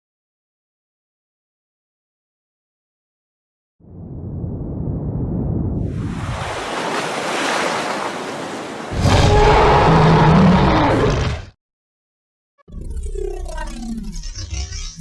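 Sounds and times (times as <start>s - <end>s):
water surging and splashing: 5.9s - 9.4s
deep monster roar: 8.9s - 11.6s.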